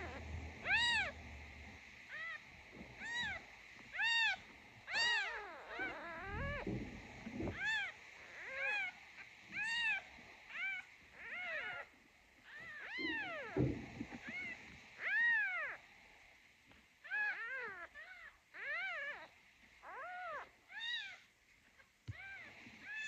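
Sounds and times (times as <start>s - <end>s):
kitten mewing: 0.0s - 1.2s, 3.0s - 6.8s, 12.5s - 15.8s.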